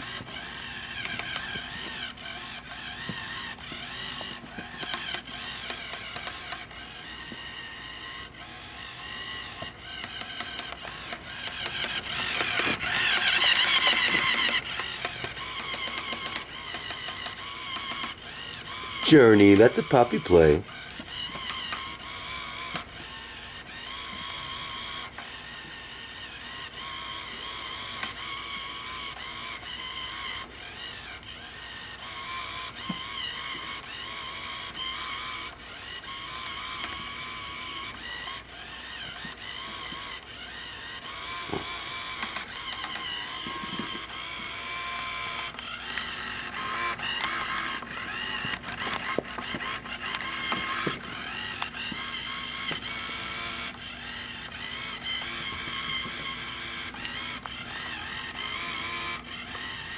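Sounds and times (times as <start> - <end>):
toy motor whirring: 0.0 - 59.9
sharp clicks: 4.2 - 6.7, 9.6 - 18.2, 42.1 - 44.1.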